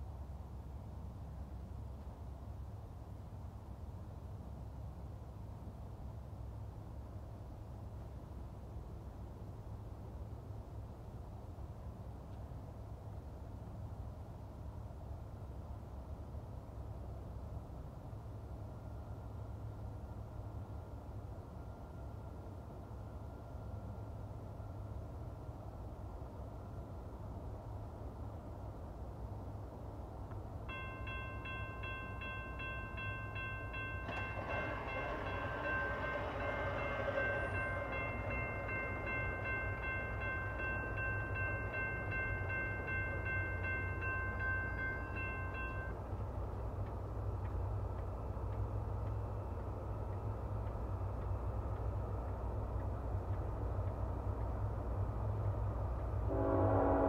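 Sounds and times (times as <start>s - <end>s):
train rumbling: 0.0s - 57.0s
railroad crossing bell ringing: 30.6s - 46.6s, 56.2s - 57.0s
train air horn: 34.4s - 38.6s, 56.2s - 57.0s.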